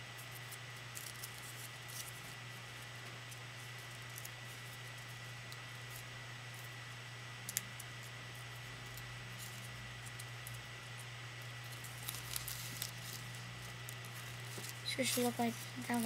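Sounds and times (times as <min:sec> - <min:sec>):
electrical hum and hiss: 0:00.0 - 0:16.0
sharp paper crackle: 0:00.2 - 0:06.0, 0:11.6 - 0:16.0
paper rustling and crinkling: 0:00.4 - 0:05.1, 0:11.6 - 0:16.0.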